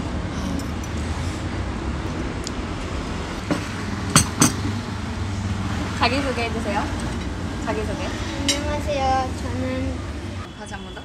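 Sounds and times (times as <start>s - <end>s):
mug and cutlery knocking on table: 3.5s - 4.6s.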